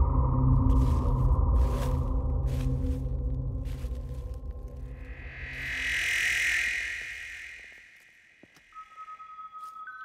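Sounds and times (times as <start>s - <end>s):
low dark drone: 0.0s - 8.4s
high tense swell: 4.8s - 8.4s.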